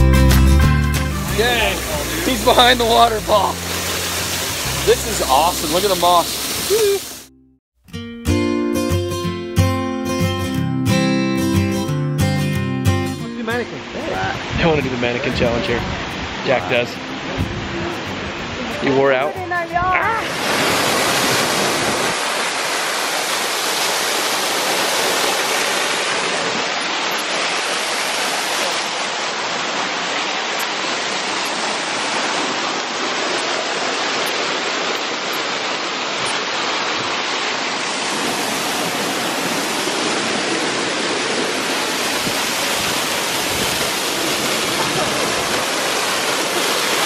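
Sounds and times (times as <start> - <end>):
waterfall splashing onto rocks: 1.2 - 7.3, 20.2 - 47.0.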